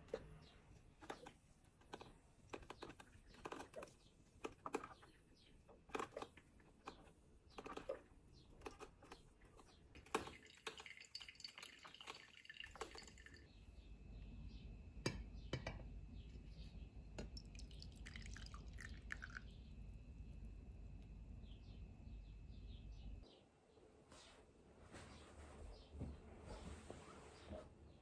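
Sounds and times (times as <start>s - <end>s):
coffee dripping into carafe: 9.9s - 13.5s, 17.2s - 19.9s.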